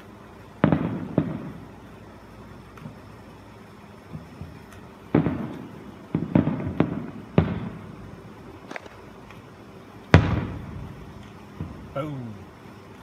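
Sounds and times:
distant firework booms: 0:00.6 - 0:01.8, 0:04.0 - 0:08.2, 0:10.1 - 0:12.2.

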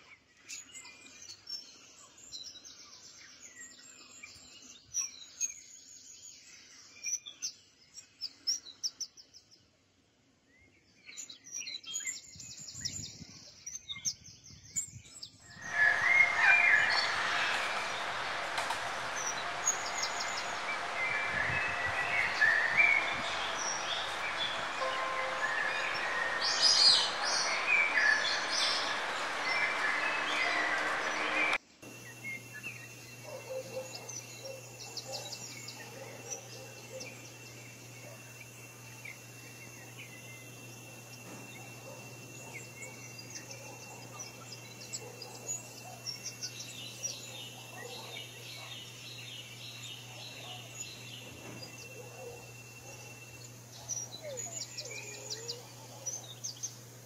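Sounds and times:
birds chirping and trilling: 0:15.2 - 0:57.0
steady high-pitched tone: 0:15.5 - 0:31.6.

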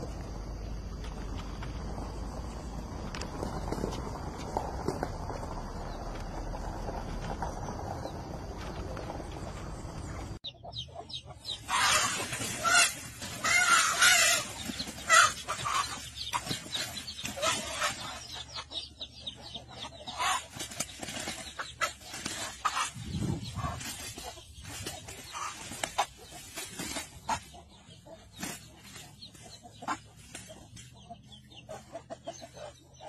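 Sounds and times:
chicken clucking and squawking: 0:10.4 - 0:33.0.

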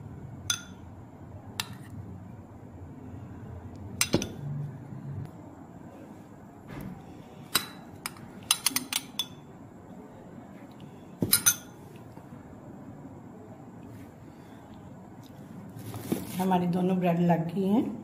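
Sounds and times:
metal spoon clinking on bowl: 0:00.5 - 0:00.8, 0:07.6 - 0:09.5, 0:11.3 - 0:11.8.

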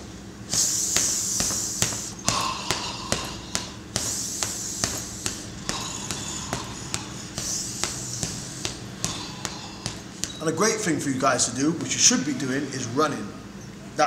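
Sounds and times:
breath hissing through mouth: 0:00.5 - 0:10.2
gloves punching heavy bag: 0:00.5 - 0:10.5.

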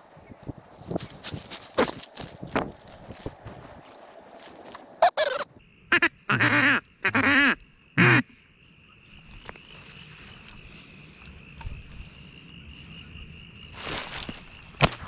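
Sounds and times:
duck quacking: 0:05.0 - 0:08.3.

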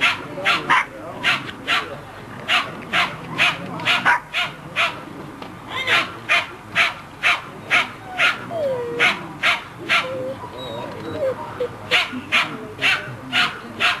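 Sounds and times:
dog whining: 0:08.0 - 0:09.2, 0:10.0 - 0:11.7.

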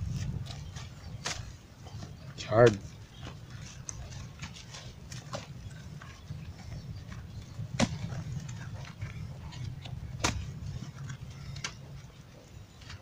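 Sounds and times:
low rumble: 0:00.0 - 0:02.1
hands crumbling dry manure: 0:00.0 - 0:13.0.

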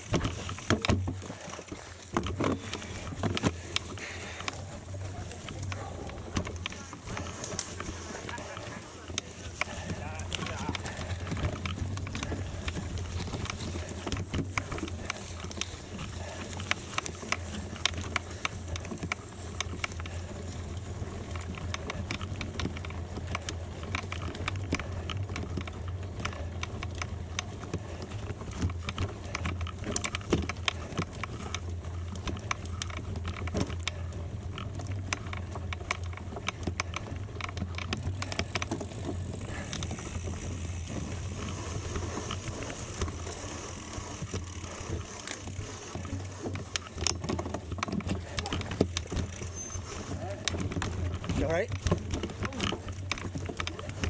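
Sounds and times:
bicycle tyres rolling on gravel: 0:00.0 - 0:54.0.

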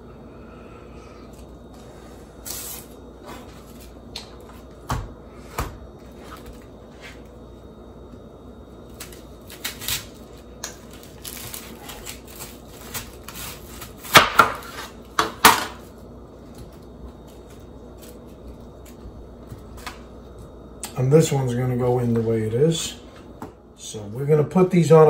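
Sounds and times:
knife slicing crunchy cabbage: 0:08.9 - 0:15.2.

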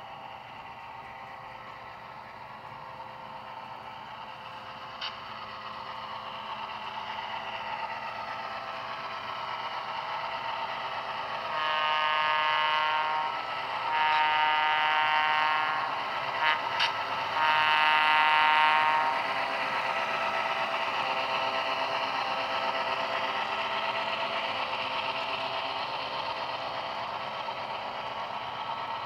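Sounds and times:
model diesel locomotive engine: 0:00.0 - 0:29.0
locomotive horn blasts: 0:11.5 - 0:19.3.

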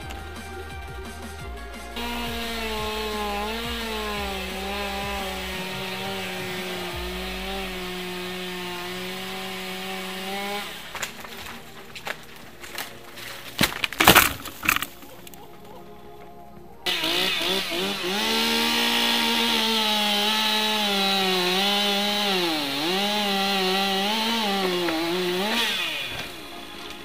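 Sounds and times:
chainsaw cutting wood: 0:00.0 - 0:13.0, 0:16.9 - 0:27.0
wood pieces hitting ground: 0:10.4 - 0:15.7.

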